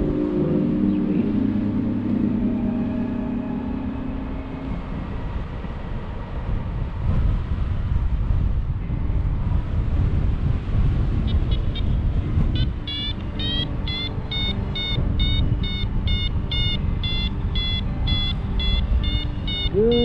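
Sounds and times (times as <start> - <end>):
wind on microphone: 0.0 - 20.0
variometer beeping: 11.2 - 20.0.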